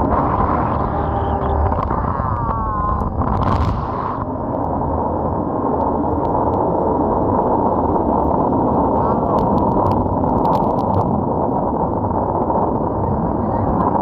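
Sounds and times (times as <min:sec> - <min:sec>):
falling whine: 0:00.0 - 0:09.5
wind on microphone: 0:00.0 - 0:14.0.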